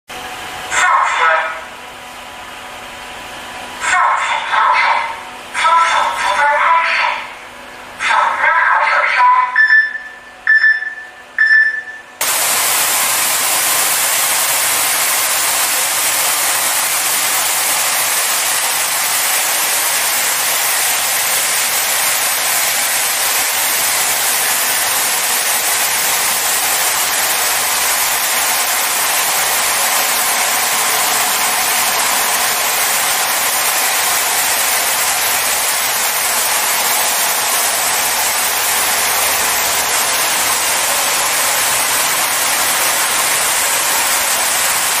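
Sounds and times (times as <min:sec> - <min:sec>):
short beeps: 0:09.4 - 0:12.2
water jets spraying a car: 0:12.2 - 0:45.0.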